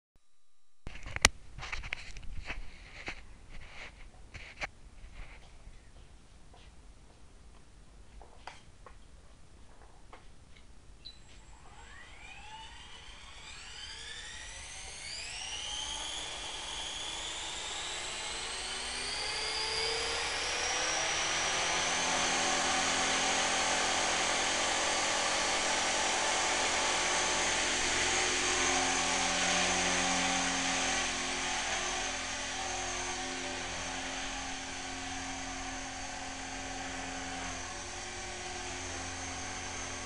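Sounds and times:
electric motor whine: 11.2s - 40.0s
helicopter rotor noise: 11.6s - 40.0s.

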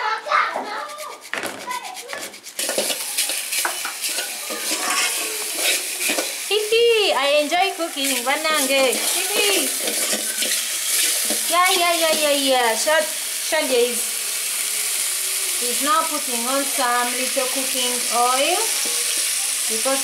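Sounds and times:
wooden spoon squeaking on pot: 0.9s - 6.2s, 8.0s - 11.3s
beef sizzling in a pot: 1.0s - 20.0s.

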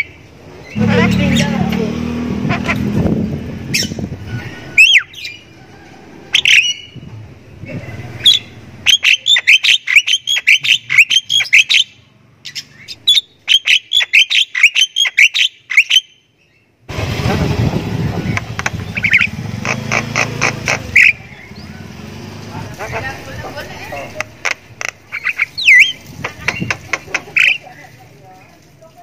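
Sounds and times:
myna squawks and whistles: 3.8s - 5.3s
bird chattering: 8.2s - 16.1s, 18.3s - 21.7s, 22.7s - 27.9s.

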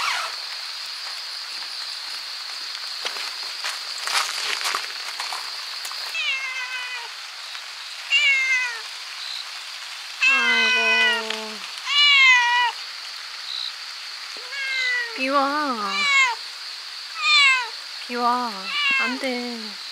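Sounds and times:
rain pattering: 0.0s - 19.9s
cat meowing: 6.1s - 7.1s, 8.1s - 8.9s, 10.2s - 12.8s, 14.4s - 15.2s, 15.8s - 16.4s, 17.2s - 17.8s, 18.6s - 19.3s.

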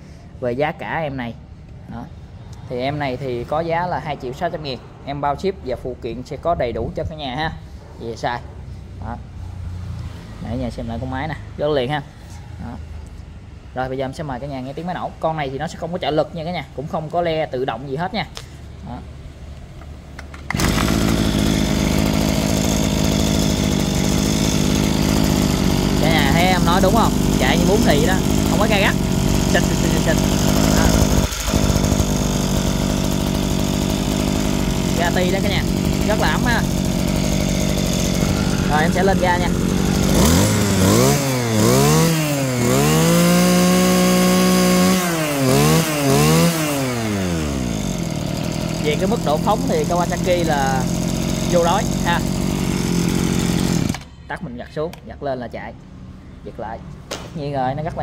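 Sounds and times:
brush cutter engine running: 20.2s - 54.1s.

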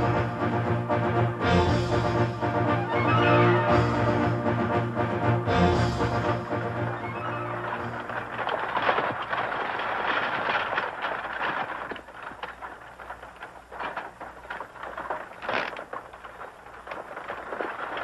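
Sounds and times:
galloping hoofbeats: 5.5s - 18.0s
rattling wheels: 6.0s - 18.0s
short knocks and rattles: 7.6s - 18.0s.

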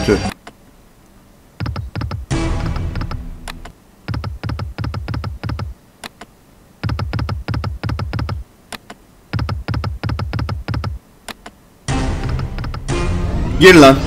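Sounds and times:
slot reels spinning clicks: 12.1s - 12.9s.

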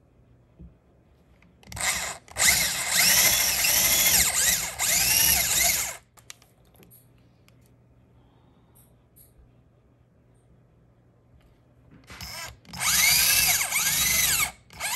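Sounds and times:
cordless drill drilling into wall: 1.6s - 6.0s, 12.1s - 14.9s.

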